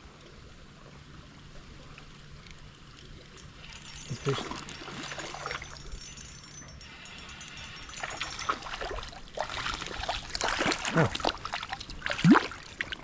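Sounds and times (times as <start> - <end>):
stream flowing: 0.0 - 13.0
fish splashing at surface: 7.9 - 13.0.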